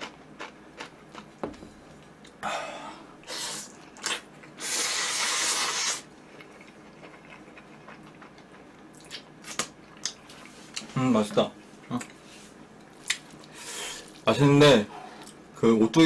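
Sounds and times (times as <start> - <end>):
person slurping noodles: 3.2 - 6.0.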